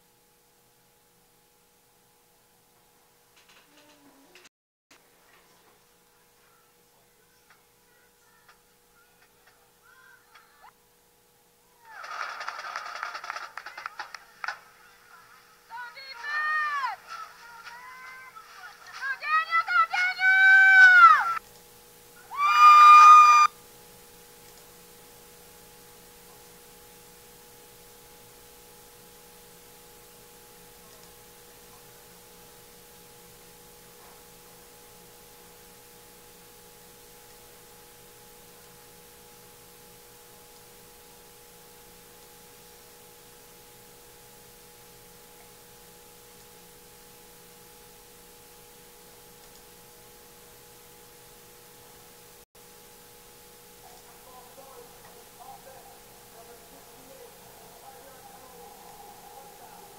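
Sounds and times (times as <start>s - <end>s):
faint two-tone hum: 0.0s - 12.1s, 13.5s - 59.9s
high-pitched yell: 19.2s - 21.4s, 22.3s - 23.5s.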